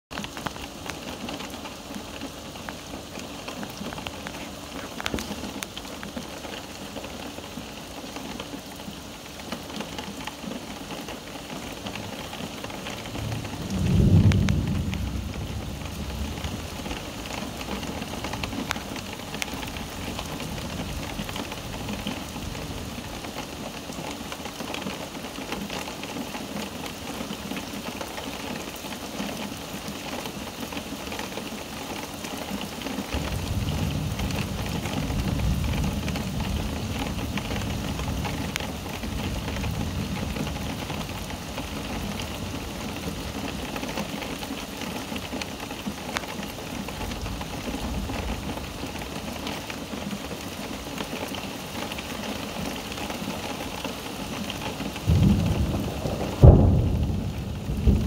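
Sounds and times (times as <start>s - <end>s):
steady rain: 0.1s - 58.0s
thunder rumbling: 12.7s - 23.2s, 33.2s - 44.2s, 54.4s - 58.0s.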